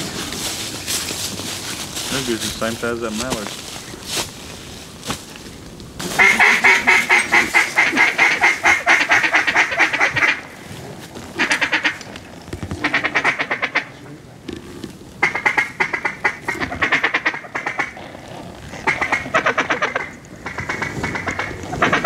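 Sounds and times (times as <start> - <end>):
duck call quacks: 6.0 - 10.5, 11.4 - 12.0, 12.8 - 14.0, 15.2 - 18.0, 18.8 - 22.0.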